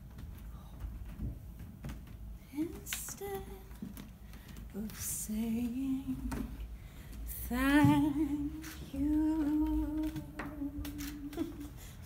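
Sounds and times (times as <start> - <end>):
woman singing long notes: 7.4 - 11.8.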